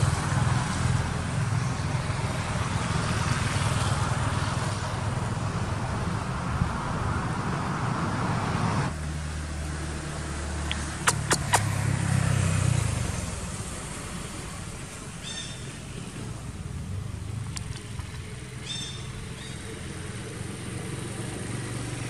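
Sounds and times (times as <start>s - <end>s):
engine hum: 0.0s - 22.0s
sharp clicks: 10.7s - 11.7s.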